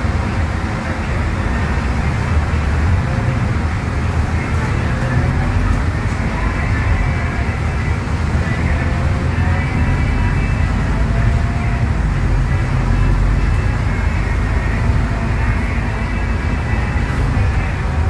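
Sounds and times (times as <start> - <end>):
diesel engine drone: 0.0 - 18.0
road noise: 0.0 - 18.0.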